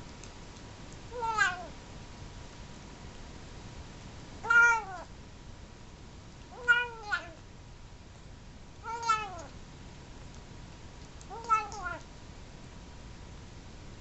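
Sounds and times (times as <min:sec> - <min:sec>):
kitten meowing: 0:01.2 - 0:01.7, 0:04.4 - 0:05.1, 0:06.5 - 0:07.4, 0:08.8 - 0:09.5, 0:11.3 - 0:12.0.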